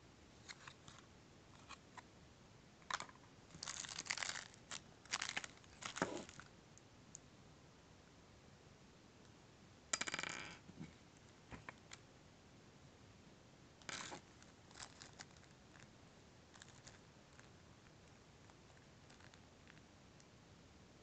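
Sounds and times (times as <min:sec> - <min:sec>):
small parts clattering: 0:02.9 - 0:06.4.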